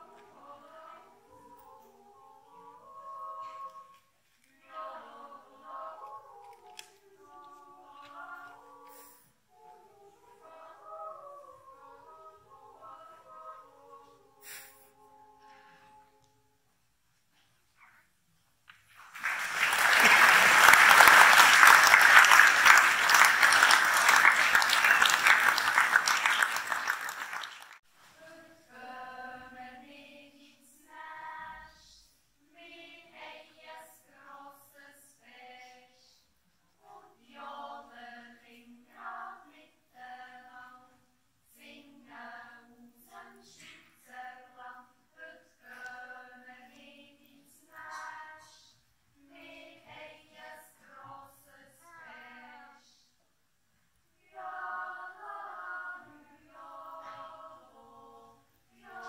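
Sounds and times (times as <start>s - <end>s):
children's choir yodeling: 0.0s - 16.2s, 54.2s - 59.0s
audience applauding: 18.9s - 27.8s.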